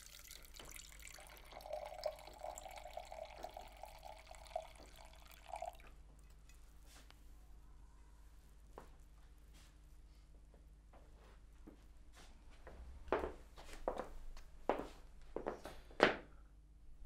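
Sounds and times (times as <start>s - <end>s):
wine pouring into a glass: 0.0s - 6.6s.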